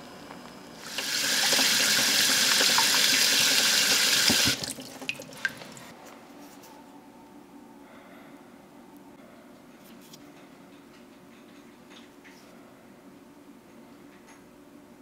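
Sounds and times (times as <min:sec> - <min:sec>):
tap water running into a pot: 0:00.1 - 0:05.8.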